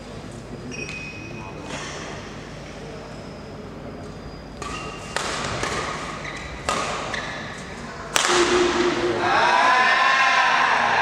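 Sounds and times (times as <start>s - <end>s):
shoe squeaks on court: 0.7s - 1.9s, 3.1s - 7.6s
racket striking shuttlecock: 4.6s - 7.3s, 8.1s - 9.2s.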